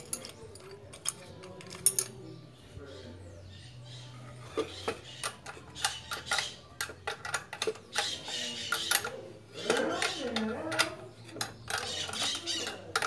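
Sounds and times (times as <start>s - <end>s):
metallic clinks of wrenches: 0.0s - 2.2s.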